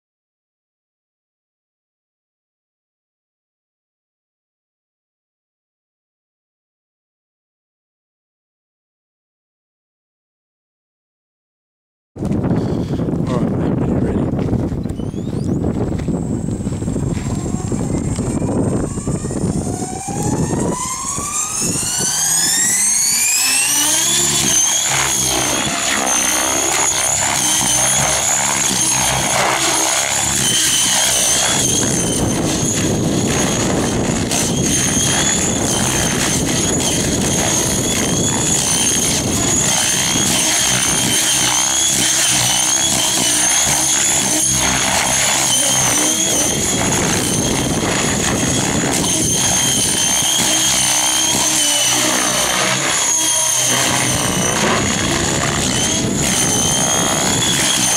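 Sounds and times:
electric motor whine: 14.3s - 57.9s
rotor blade whoosh: 16.2s - 57.9s.

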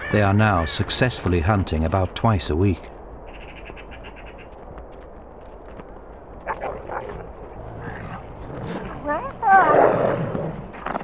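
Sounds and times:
wolves growling and yelping: 6.5s - 11.0s.

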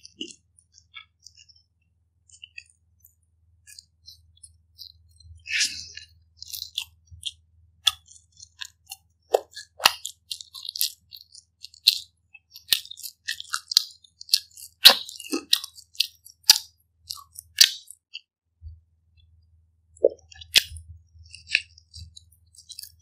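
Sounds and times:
wet mouth chewing smacks: 5.5s - 18.0s.

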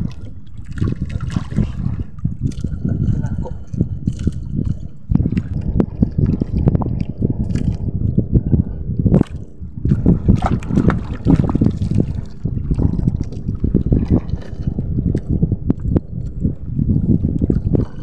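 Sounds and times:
waves slapping boat hull: 0.0s - 7.8s, 9.2s - 15.3s
wind buffeting microphone: 0.0s - 18.0s.

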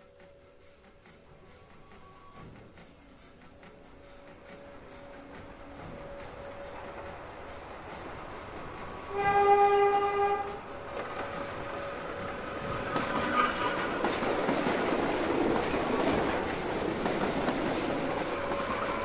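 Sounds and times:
moving train: 0.0s - 19.0s
train horn: 9.1s - 10.8s, 12.6s - 14.1s, 18.3s - 19.0s.

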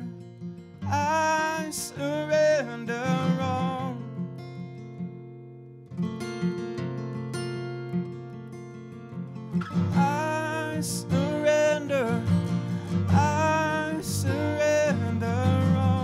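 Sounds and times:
acoustic guitar: 0.0s - 16.0s
man singing a slow worship song: 0.8s - 4.0s, 10.0s - 16.0s.

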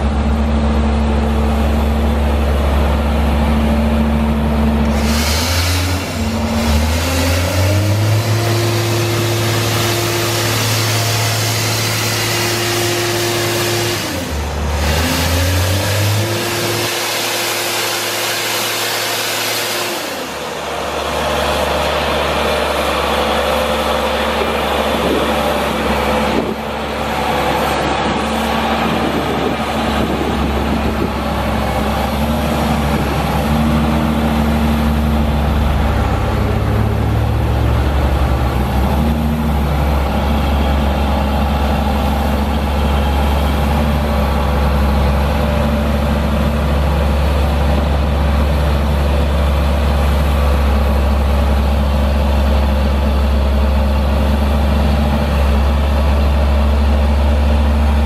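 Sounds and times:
diesel engine running: 0.0s - 58.0s
hydraulic drill boom moving: 4.8s - 17.0s.

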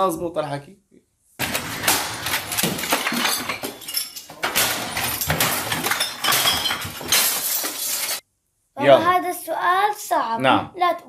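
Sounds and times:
banging and clattering: 1.4s - 8.2s
glass clinking and breaking: 1.4s - 8.2s.

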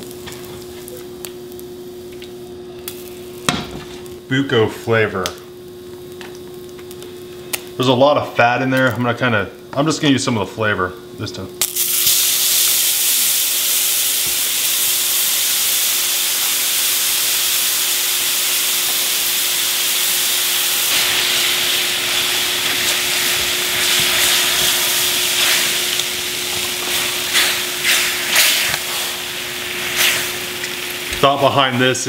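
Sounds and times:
meat sizzling in a frying pan: 0.0s - 1.8s, 11.6s - 32.0s.

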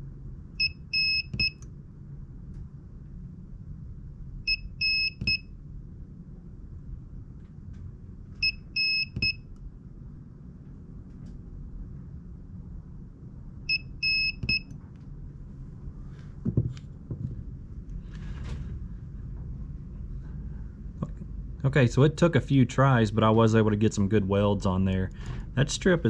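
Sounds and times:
spot welder beeping: 0.6s - 1.6s, 8.4s - 9.4s, 13.7s - 14.7s
knocks and rustles of handling: 16.4s - 17.4s.

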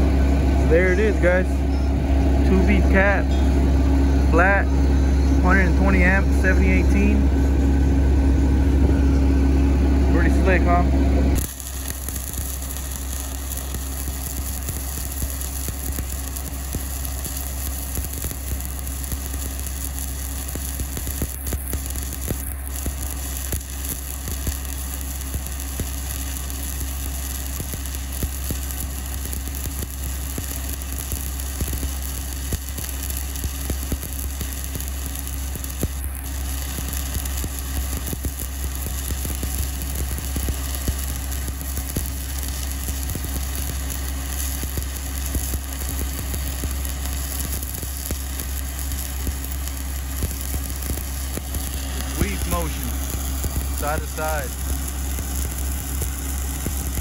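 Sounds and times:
low hum: 0.0s - 57.0s
welding arc crackling hiss: 0.6s - 1.6s, 2.4s - 3.5s, 5.4s - 7.2s, 10.1s - 57.0s.

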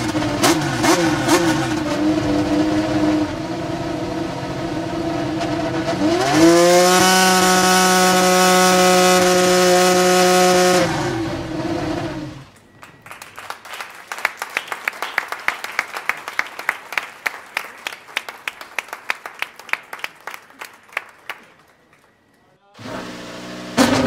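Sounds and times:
racing car engine running: 0.0s - 12.5s, 22.8s - 24.0s
people applauding: 12.6s - 22.4s.

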